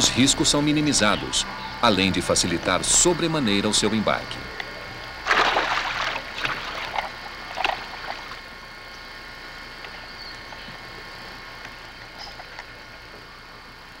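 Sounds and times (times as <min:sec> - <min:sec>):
fish splashing in a net: 0:05.2 - 0:08.4.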